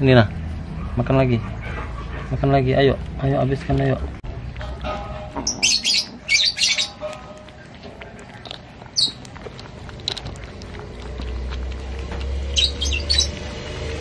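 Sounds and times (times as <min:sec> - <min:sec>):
animals lapping egg yolk: 0:02.3 - 0:14.0
high-pitched squeaky chirps: 0:05.4 - 0:07.2, 0:09.0 - 0:09.2, 0:12.5 - 0:13.4
small wet clicks: 0:07.0 - 0:14.0.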